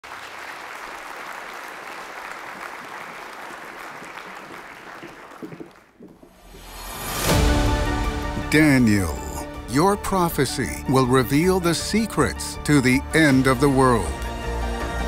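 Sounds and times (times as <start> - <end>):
congregation applauding: 0.0 - 6.2.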